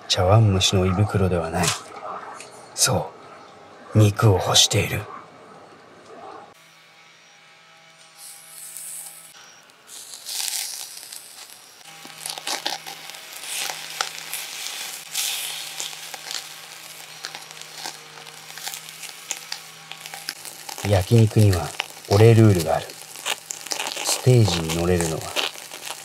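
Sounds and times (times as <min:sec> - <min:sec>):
meat sizzling on a grill: 0:08.1 - 0:26.0.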